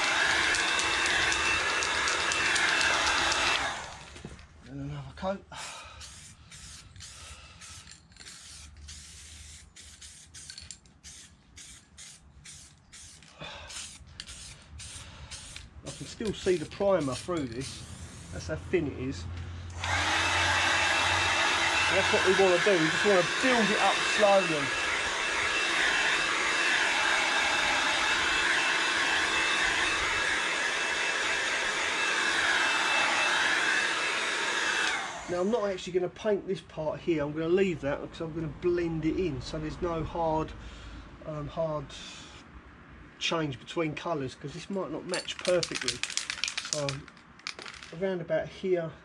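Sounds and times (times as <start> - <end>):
heat gun blowing air: 0.0 - 4.2, 5.6 - 18.6, 19.7 - 35.5
aerosol spray can hissing: 5.9 - 18.5.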